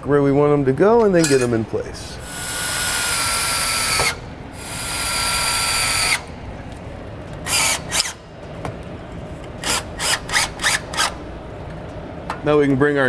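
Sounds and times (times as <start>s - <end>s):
drill driving screws into steel: 2.2s - 6.3s, 7.4s - 8.2s, 9.6s - 11.2s.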